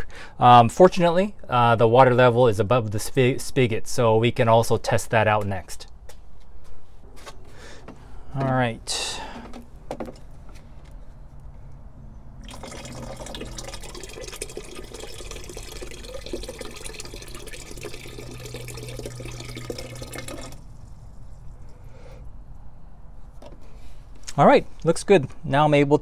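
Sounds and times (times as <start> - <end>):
water running into watering can: 12.4 - 21.8.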